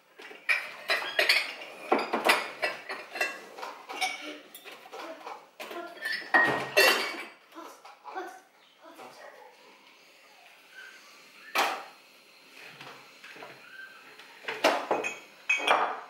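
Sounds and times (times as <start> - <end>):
dishes and cutlery clattering: 0.2 - 8.2, 14.4 - 16.0.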